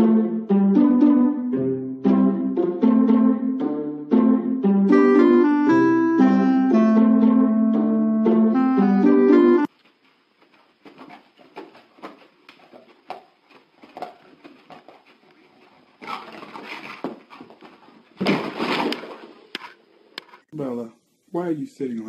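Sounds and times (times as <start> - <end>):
piano music: 0.0 - 9.7.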